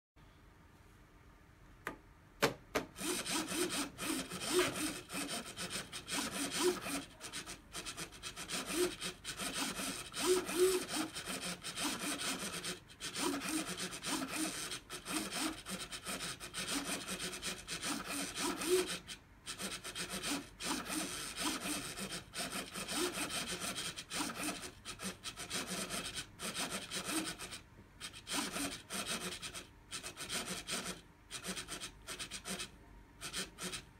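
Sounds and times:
servo motor whining: 0:03.0 - 0:29.6.

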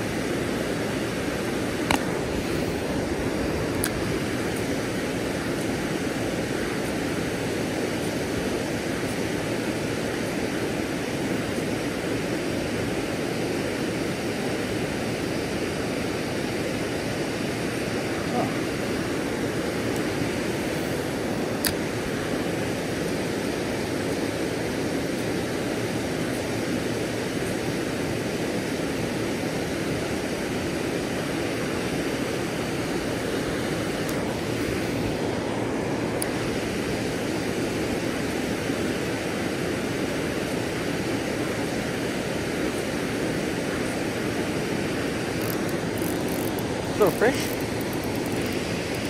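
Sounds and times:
water rushing over dam: 0:00.0 - 0:49.0.

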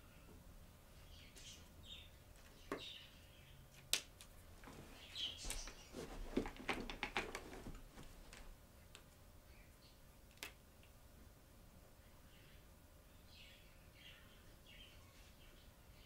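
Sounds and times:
marker pens clicking and clattering: 0:06.4 - 0:07.5.

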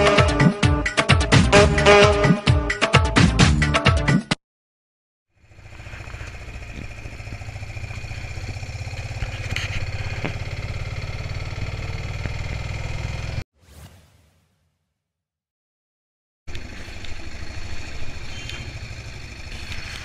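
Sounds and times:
small engine running: 0:05.4 - 0:13.4, 0:16.5 - 0:20.0.

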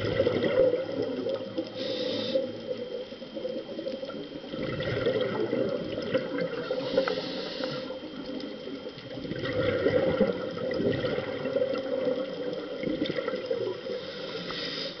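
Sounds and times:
rush of exhaled bubbles: 0:00.0 - 0:01.7, 0:03.4 - 0:07.1, 0:09.0 - 0:13.9
regulator hiss on inhale: 0:01.4 - 0:02.9, 0:06.5 - 0:08.8, 0:13.6 - 0:15.0
scuba regulator breathing underwater: 0:01.6 - 0:02.7, 0:06.5 - 0:08.2, 0:13.7 - 0:15.0.

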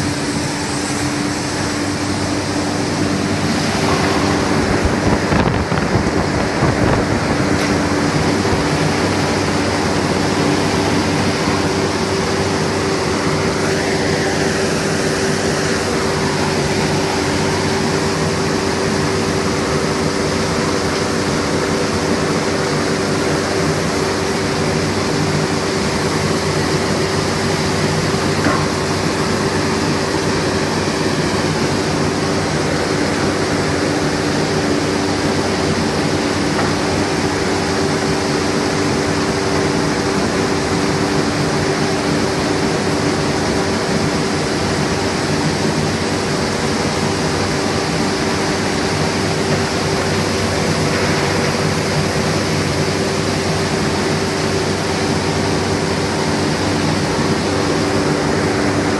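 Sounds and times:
higher hum: 0:00.0 - 0:23.6
constant low hum: 0:00.0 - 0:58.9
industrial machinery din: 0:00.0 - 0:58.9.

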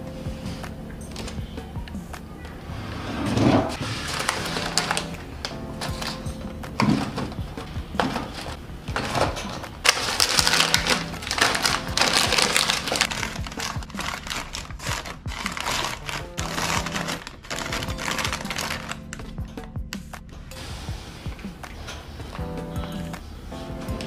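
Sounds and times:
background music: 0:00.0 - 0:24.0
packaging rustling and crackling: 0:03.8 - 0:19.3.

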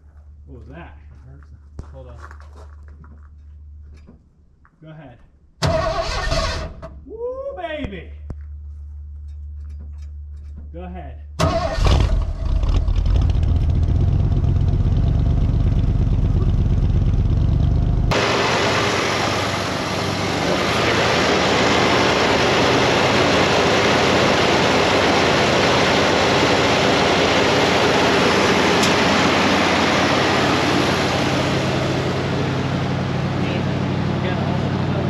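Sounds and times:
deep exhaust rumble: 0:00.0 - 0:35.0
harsh hissy engine running: 0:18.1 - 0:35.0.

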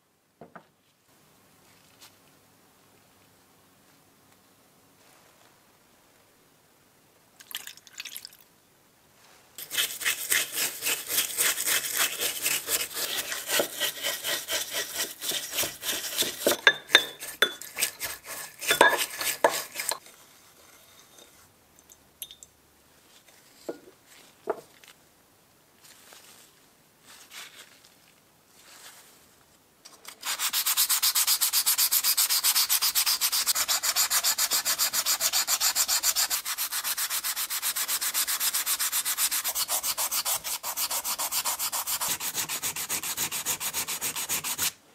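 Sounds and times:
hand sanding metal: 0:09.6 - 0:20.0, 0:30.2 - 0:44.8.

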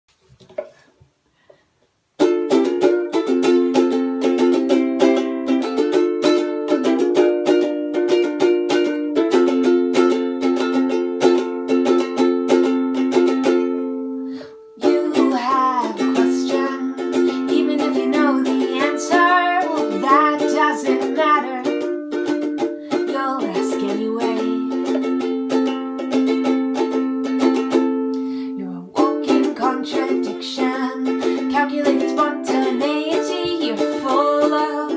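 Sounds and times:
ukulele strumming: 0:02.2 - 0:34.9
woman singing: 0:14.8 - 0:22.0, 0:22.9 - 0:25.1, 0:28.5 - 0:34.9.

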